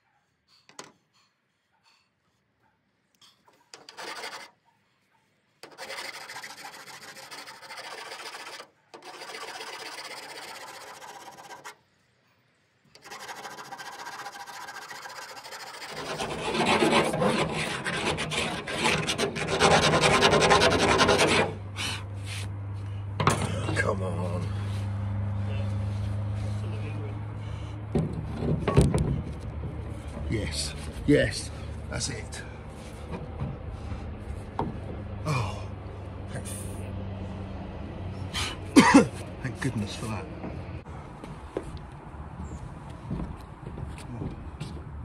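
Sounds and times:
hand tool scraping metal roof: 0:03.6 - 0:04.6, 0:05.6 - 0:11.8, 0:12.9 - 0:22.5.

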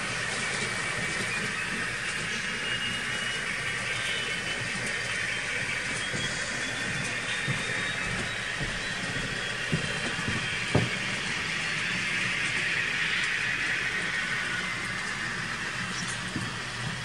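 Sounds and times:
model train motors whirring: 0:00.0 - 0:17.0.

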